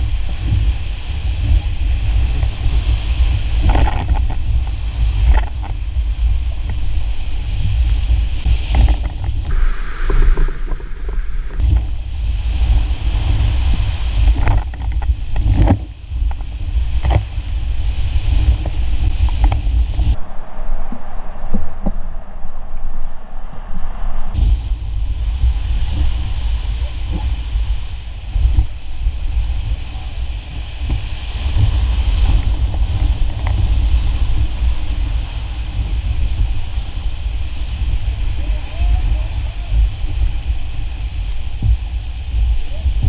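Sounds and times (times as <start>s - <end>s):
waves splashing over raft: 0.0s - 20.2s, 24.4s - 43.0s
wind buffeting microphone: 0.0s - 43.0s
whitewater rapids rushing: 24.4s - 43.0s.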